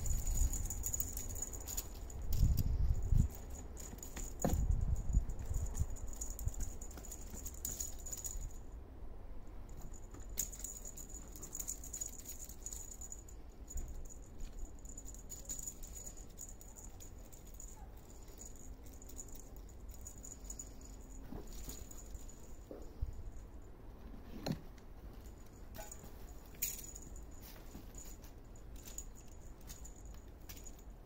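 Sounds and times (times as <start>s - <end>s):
small jingle bell jingling: 0.0s - 8.7s, 9.7s - 23.8s, 25.2s - 31.0s.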